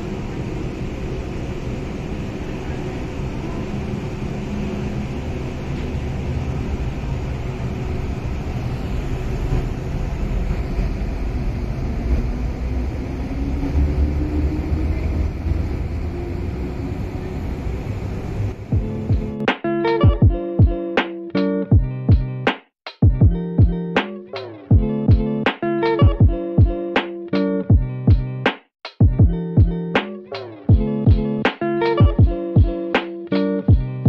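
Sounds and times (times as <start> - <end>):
train motor whine: 0.0 - 19.3
train wheels rumbling on track: 0.0 - 19.3.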